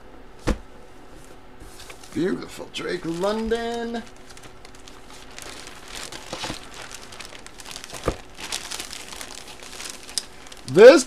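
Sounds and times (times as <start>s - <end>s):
plastic bag crinkling: 2.8s - 11.0s.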